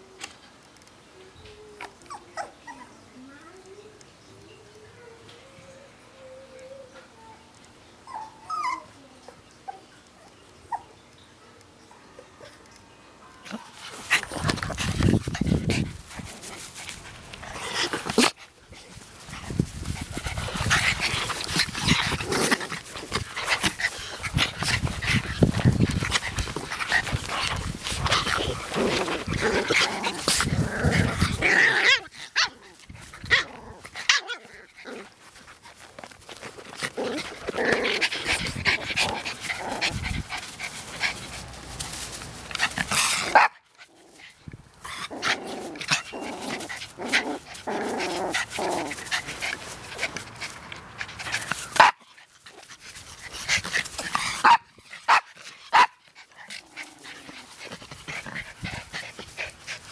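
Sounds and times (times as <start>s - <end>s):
dogs growling: 19.3s - 41.4s, 42.6s - 51.8s, 52.5s - 59.9s
dogs barking: 54.4s - 56.0s.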